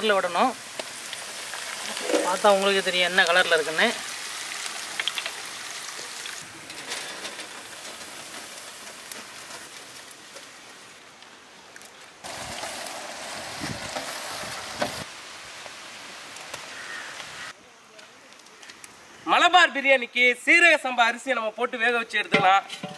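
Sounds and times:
onions sizzling in hot oil: 0.0s - 17.6s
ladle thumping in pan: 1.9s - 2.5s.

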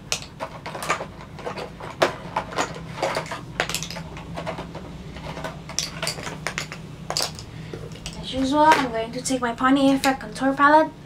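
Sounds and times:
plastic compacts clattering on table: 0.1s - 8.9s.

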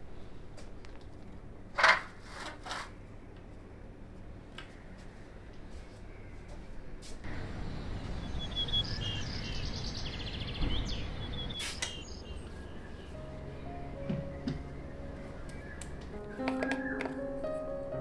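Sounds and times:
birds chirping: 4.7s - 17.9s.

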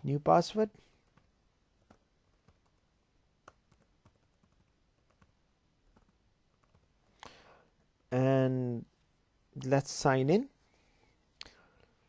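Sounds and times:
faint keyboard typing: 0.7s - 7.2s.

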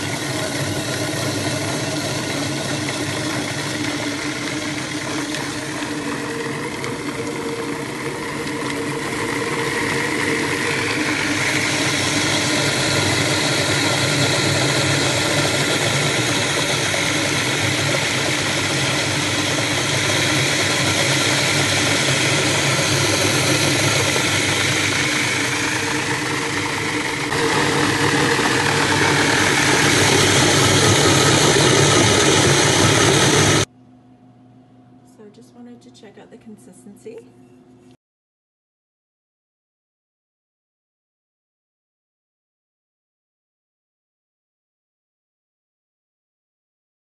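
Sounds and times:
food processor whirring: 0.0s - 33.7s.

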